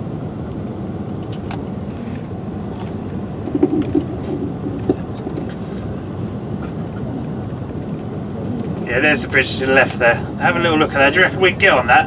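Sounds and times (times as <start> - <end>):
coach engine and road noise: 0.0 - 12.0
knocks and rattles: 3.4 - 6.0.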